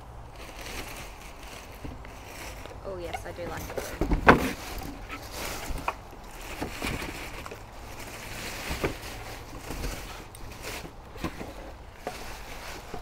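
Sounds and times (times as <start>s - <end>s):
plastic bag crinkling: 0.3s - 13.0s.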